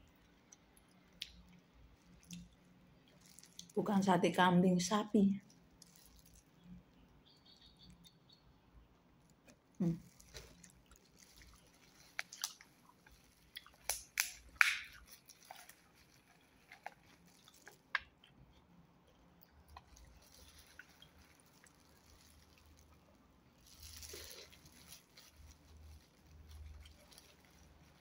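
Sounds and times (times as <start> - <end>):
person chewing food: 0.0 - 3.8, 5.5 - 6.6, 9.3 - 28.0
wet mouth smacks: 13.6 - 15.1.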